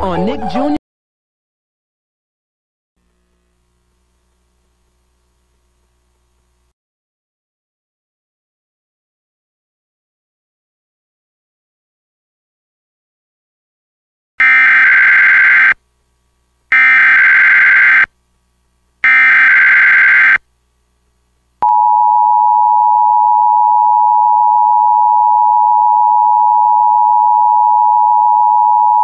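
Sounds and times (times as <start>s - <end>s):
buzzy digital data bursts: 14.4s - 15.8s, 16.7s - 18.1s, 19.0s - 20.4s.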